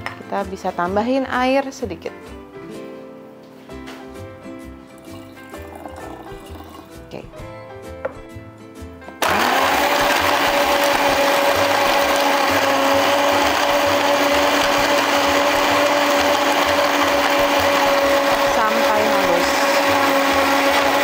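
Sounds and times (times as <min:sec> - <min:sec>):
blender motor whining: 0:09.2 - 0:21.0.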